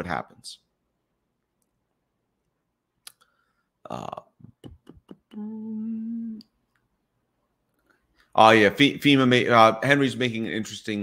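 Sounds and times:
man humming: 0:03.9 - 0:06.4.

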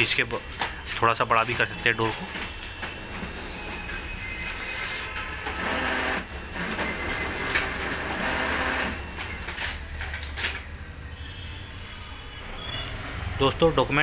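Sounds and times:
paper feeding whir: 0:05.4 - 0:09.3
copier motor hum: 0:05.4 - 0:09.5.

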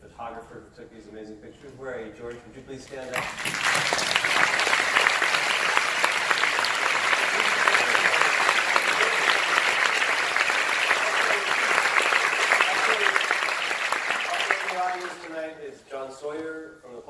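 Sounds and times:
audience applauding: 0:03.1 - 0:15.4.

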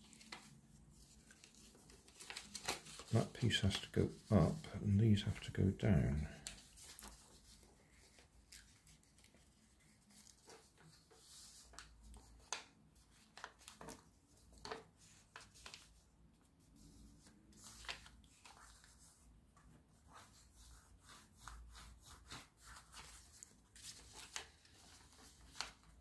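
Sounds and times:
paper crackles: 0:00.0 - 0:05.6, 0:06.3 - 0:16.0, 0:16.9 - 0:19.1, 0:21.1 - 0:26.0
paper rustling and folding: 0:00.0 - 0:26.0.

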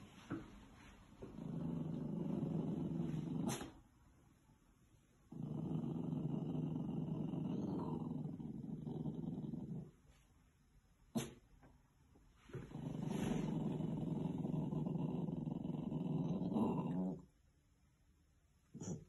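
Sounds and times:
puppy growling: 0:01.2 - 0:03.8, 0:05.3 - 0:10.0, 0:12.6 - 0:17.3, 0:18.7 - 0:19.0.

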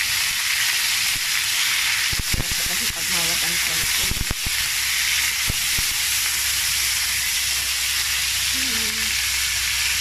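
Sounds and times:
meat sizzling in a pan: 0:00.0 - 0:10.0.

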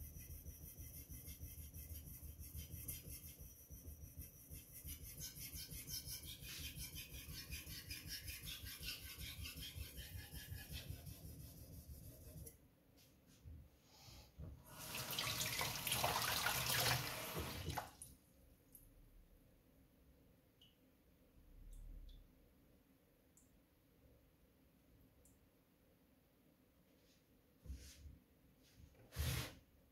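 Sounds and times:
knife scraping on whetstone: 0:00.2 - 0:12.5
water running: 0:14.7 - 0:18.1.

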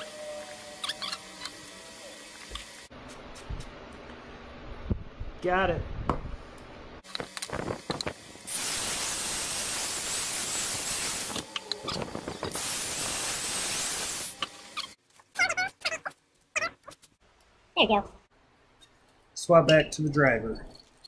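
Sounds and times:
electric drill boring wood: 0:00.0 - 0:02.4.

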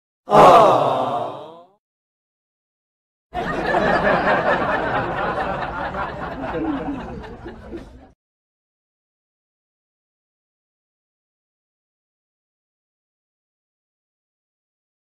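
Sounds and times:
burst of laughter: 0:03.4 - 0:08.2.

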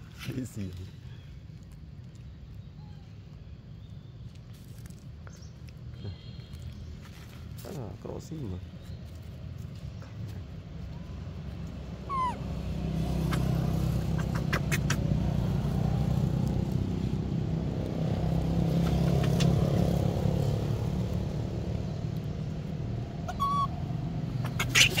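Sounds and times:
vehicle engine rumble: 0:00.0 - 0:25.0
high squeak: 0:23.3 - 0:23.7.

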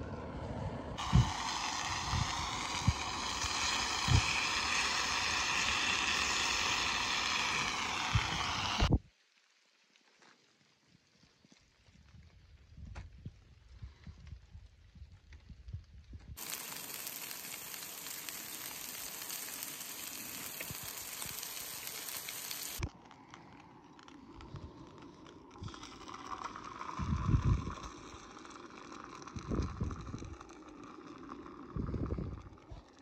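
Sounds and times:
steady hiss: 0:01.0 - 0:09.4, 0:16.4 - 0:22.9.

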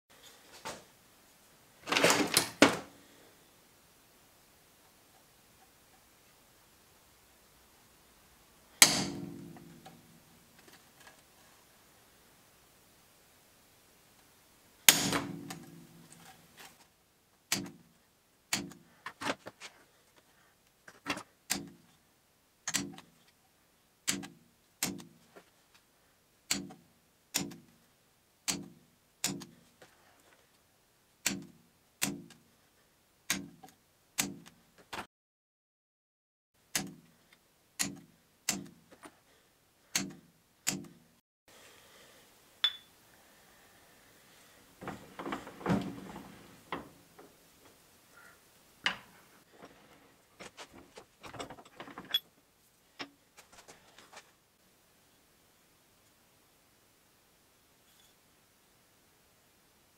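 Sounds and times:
quiet handling: 0:44.6 - 0:52.3.

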